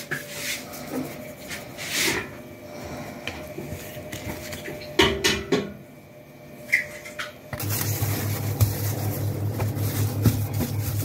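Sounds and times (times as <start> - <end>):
low pulsing hum: 5.8 - 11.0
plastic film rustling: 7.6 - 11.0.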